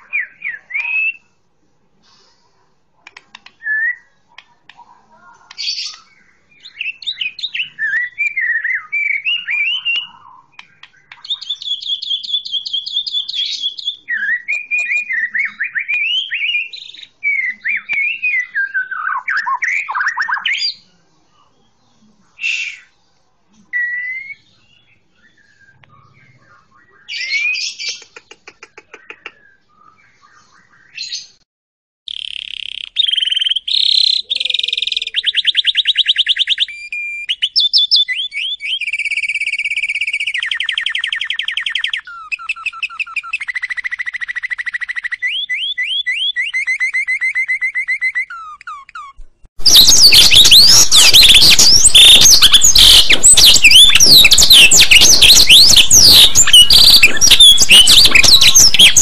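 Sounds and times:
bird singing trills: 0:05.6 - 0:20.8, 0:32.1 - 0:59.0
bird fast chattering notes: 0:48.3 - 0:59.0.

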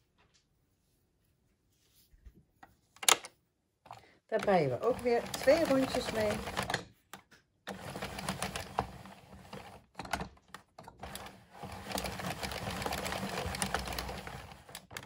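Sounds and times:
knitting machine clattering: 0:03.9 - 0:06.9, 0:07.7 - 0:15.0.

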